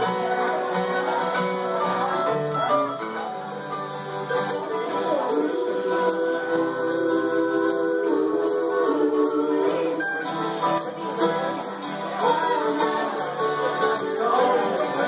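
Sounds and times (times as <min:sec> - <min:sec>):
acoustic guitar: 0:00.0 - 0:15.0
mandolin: 0:00.0 - 0:15.0
woman singing: 0:04.5 - 0:15.0.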